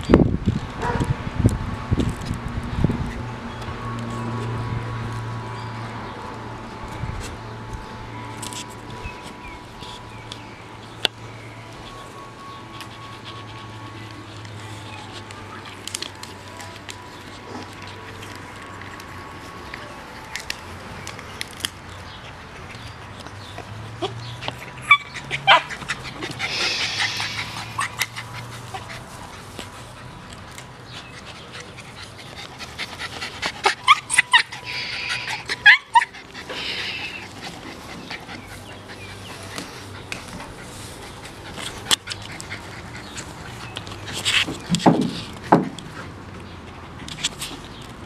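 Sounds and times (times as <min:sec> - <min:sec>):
dog teeth gnawing wooden stick: 0:37.2 - 0:48.0.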